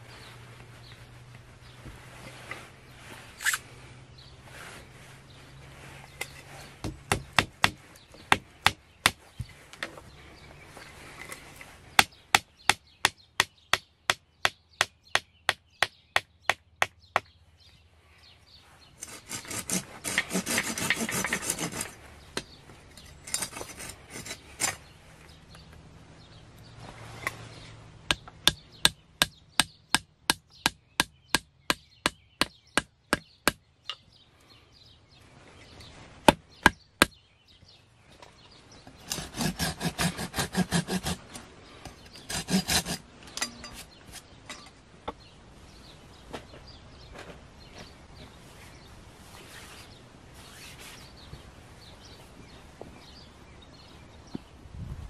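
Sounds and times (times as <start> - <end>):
wooden peg hammering knocks: 6.8 - 9.6, 12.0 - 17.3, 28.1 - 34.0, 36.2 - 37.2
small saw cutting wood: 19.0 - 22.0, 23.0 - 24.9, 38.9 - 44.4.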